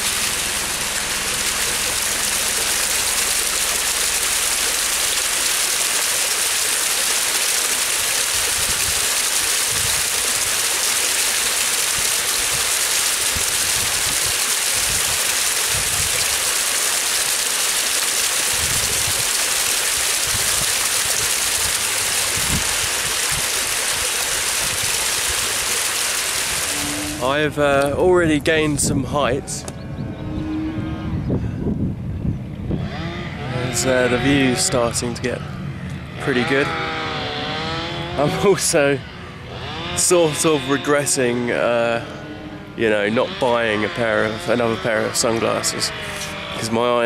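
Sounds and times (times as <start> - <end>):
stream rushing over rocks: 0.0 - 27.4.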